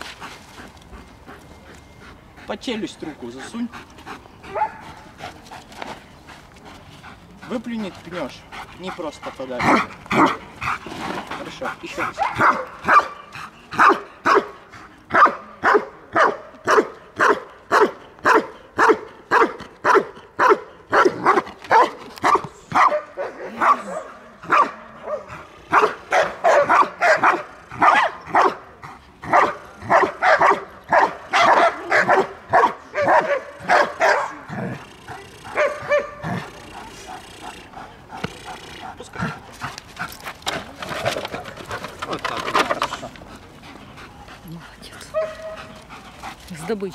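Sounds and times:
dog barking sharply: 12.2 - 13.1, 15.2 - 23.9, 24.5 - 28.6.

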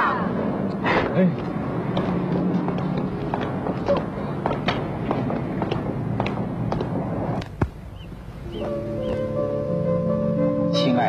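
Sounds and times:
street traffic hum: 0.0 - 11.0
hard-soled footsteps on pavement: 0.7 - 9.5.

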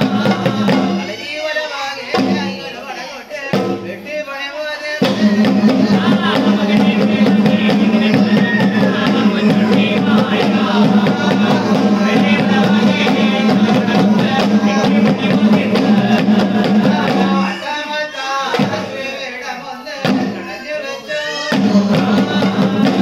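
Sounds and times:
quick drum strokes: 0.0 - 1.4, 3.5 - 4.0, 5.0 - 17.7, 18.5 - 19.1, 20.0 - 20.5, 21.5 - 23.0
men singing: 0.0 - 23.0.

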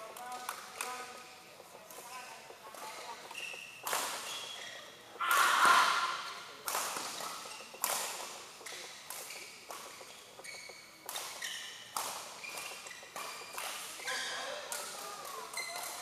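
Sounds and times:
racket hitting shuttlecock: 3.8 - 4.5, 5.2 - 10.1, 11.0 - 16.0.

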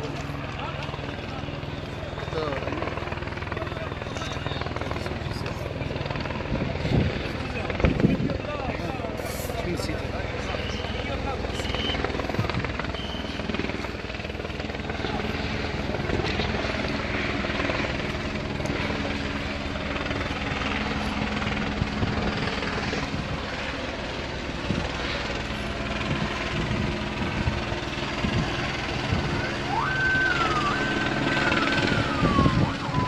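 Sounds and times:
helicopter running overhead: 0.0 - 33.0
emergency vehicle siren wailing: 28.3 - 33.0.

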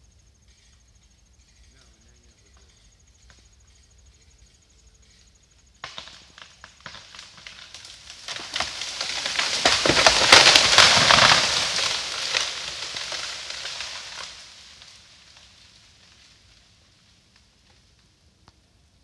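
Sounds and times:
tree crashing down: 5.8 - 17.0.

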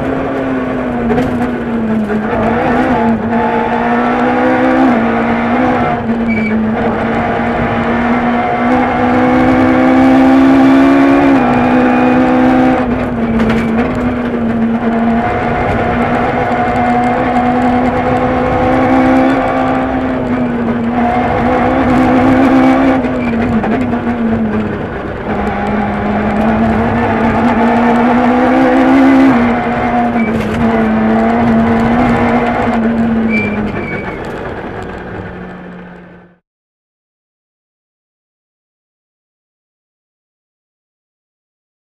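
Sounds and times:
rally car engine revving: 0.0 - 36.4.

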